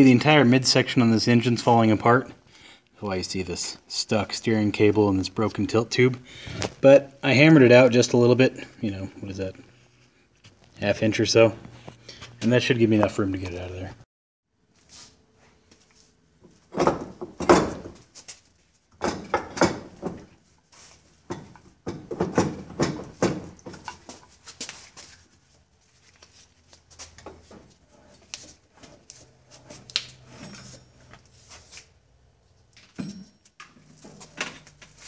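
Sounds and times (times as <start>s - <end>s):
metal knocking and scraping: 16.4s - 18.1s, 18.9s - 20.4s, 21.2s - 24.4s, 27.2s - 31.3s, 32.8s - 35.0s.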